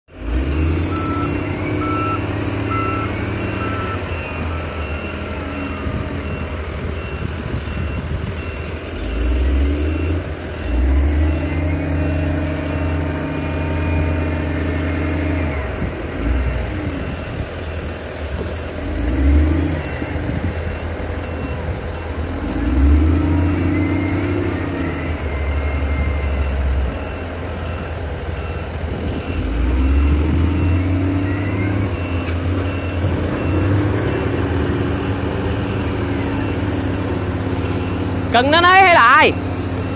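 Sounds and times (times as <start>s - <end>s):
excavator diesel engine running: 0.1s - 39.9s
repeating electronic beep: 0.5s - 13.2s, 16.8s - 39.9s.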